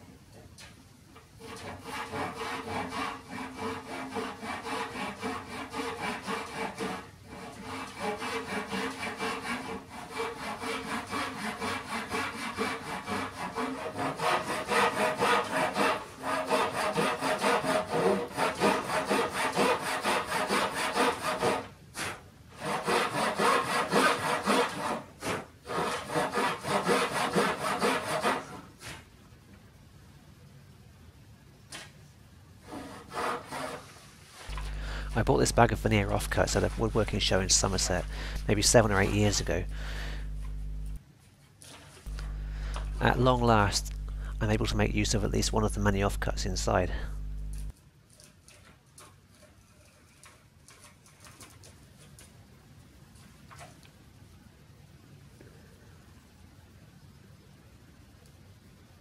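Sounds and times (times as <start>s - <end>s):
handsaw cutting wood: 1.4s - 28.7s, 32.6s - 40.9s, 42.1s - 47.7s.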